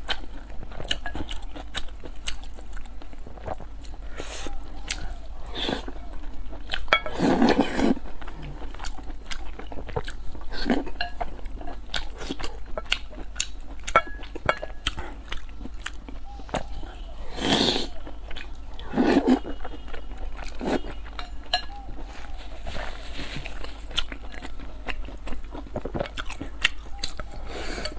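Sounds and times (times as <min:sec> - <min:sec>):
person chewing noodles: 0:00.0 - 0:27.9
slurps: 0:07.0 - 0:08.6.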